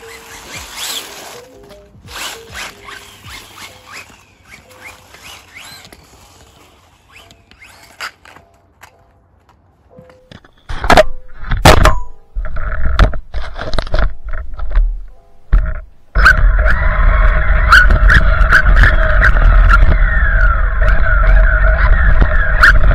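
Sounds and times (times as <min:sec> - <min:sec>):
rc truck drivetrain rattling: 0:00.0 - 0:08.4, 0:16.2 - 0:22.9.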